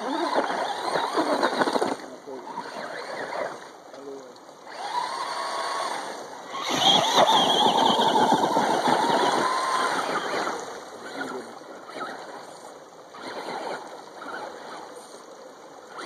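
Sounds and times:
toy truck motor whine: 0.0s - 3.7s, 4.6s - 15.2s
water splashing: 0.0s - 16.0s.

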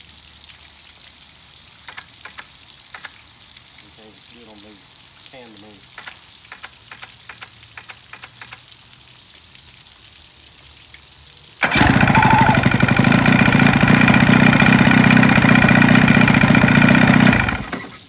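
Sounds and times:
outboard motor running: 11.6s - 18.0s.

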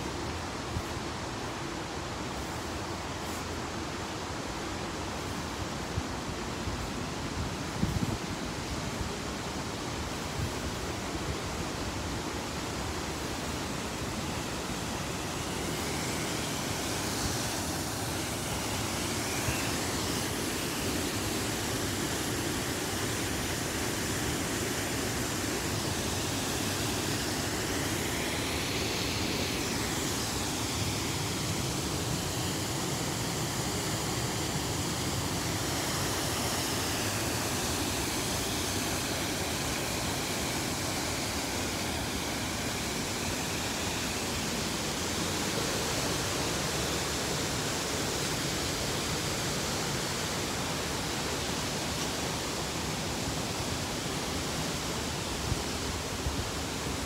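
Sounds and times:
waterfall rushing: 11.9s - 57.0s.

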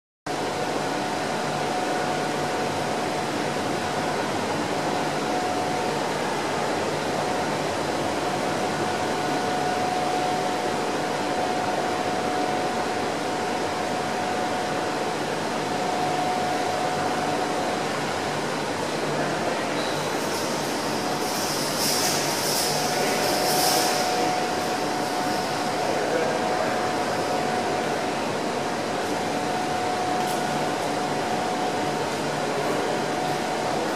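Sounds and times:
machinery hum and hiss: 0.3s - 33.9s
thin steady whine: 8.4s - 33.9s.

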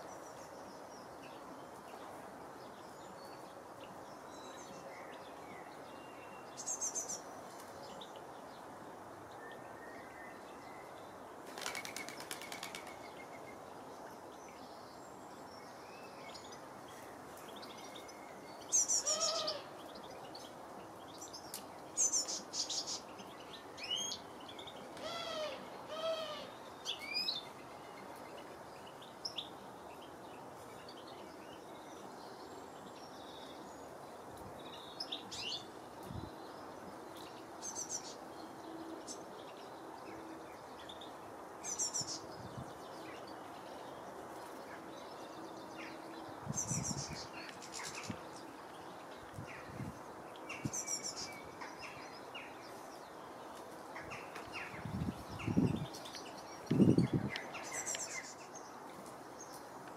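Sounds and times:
outdoor background hiss: 0.0s - 59.9s
wingbeats: 11.5s - 13.0s.

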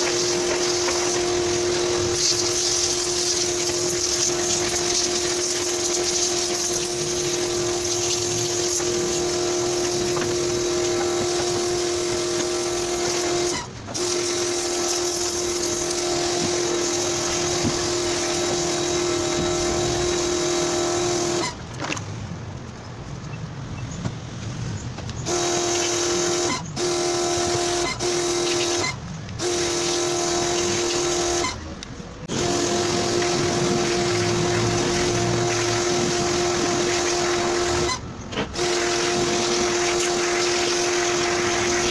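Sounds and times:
pressure washer motor whine: 0.0s - 21.6s, 25.2s - 31.7s, 32.3s - 41.9s
water jet hissing: 0.0s - 21.6s, 32.3s - 38.0s, 38.6s - 41.9s.

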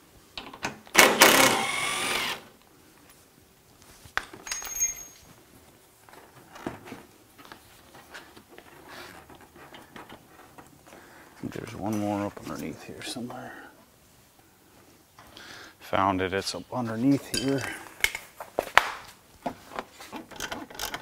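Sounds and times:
cordless drill spinning: 1.0s - 2.5s.

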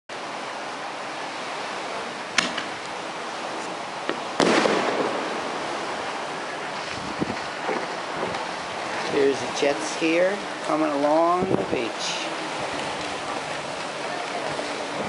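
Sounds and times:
steady hiss: 1.5s - 15.0s
fireworks bursting: 4.4s - 6.6s
fireworks crackle: 4.4s - 8.5s.

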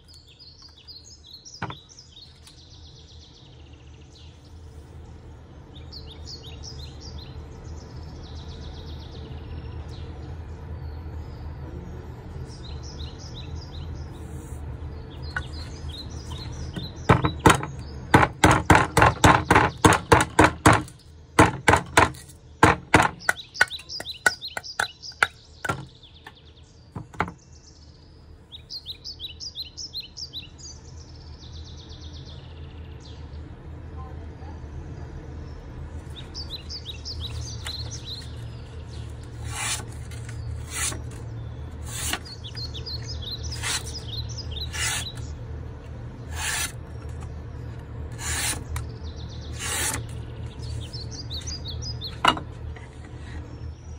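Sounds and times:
birds chirping: 0.0s - 53.9s
knife chopping into wood: 16.8s - 25.9s, 39.4s - 41.2s, 49.6s - 50.1s.

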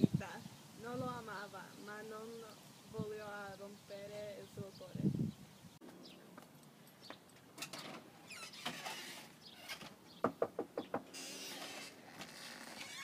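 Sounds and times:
hand knocking on door: 10.2s - 11.1s.

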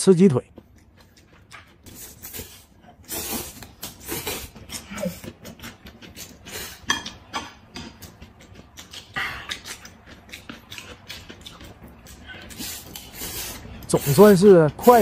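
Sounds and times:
noodles slurped: 1.9s - 6.9s, 8.0s - 15.0s
cucumber crunching and chewing: 7.9s - 14.2s.

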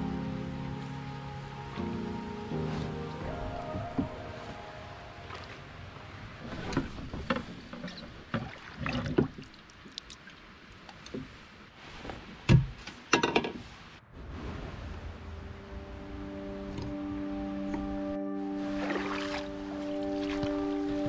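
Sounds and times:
water splashing and pouring: 5.2s - 11.0s, 14.1s - 15.7s, 18.6s - 21.0s.

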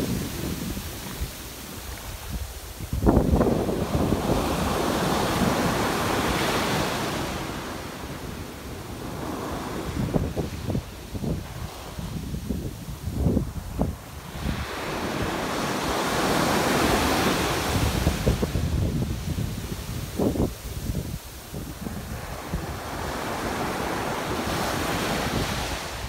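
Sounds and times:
foam hissing up sand: 0.0s - 5.7s
ocean waves breaking: 0.0s - 12.1s, 13.4s - 26.0s.

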